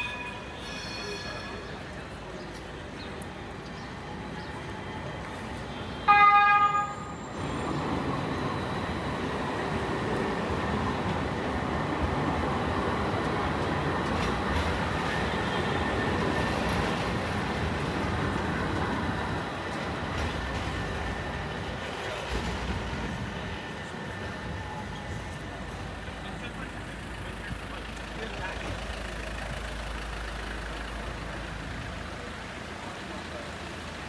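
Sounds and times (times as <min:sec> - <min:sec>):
vehicle horn toot: 0:06.0 - 0:07.1.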